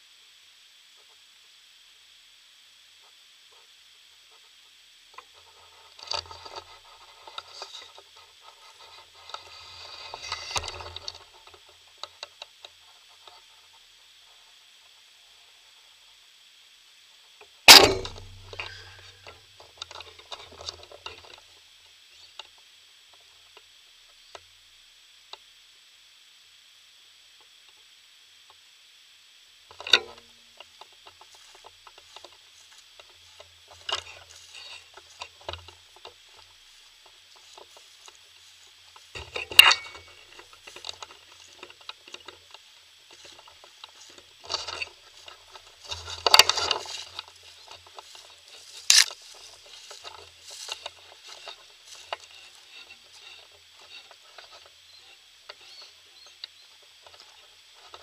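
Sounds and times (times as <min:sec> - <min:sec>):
faint high hiss: 0:00.0 - 0:58.0
footsteps crunching dry grass: 0:05.4 - 0:11.9, 0:17.7 - 0:21.4, 0:30.1 - 0:58.0
knocks from handling a bow: 0:17.7 - 0:20.0.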